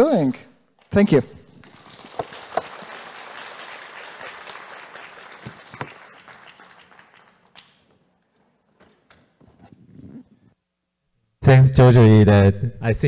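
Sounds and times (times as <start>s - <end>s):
audience applauding: 1.5s - 8.0s.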